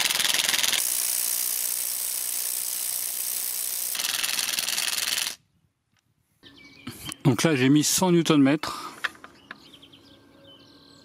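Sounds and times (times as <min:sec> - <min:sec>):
impact wrench hammering: 0:00.0 - 0:05.4.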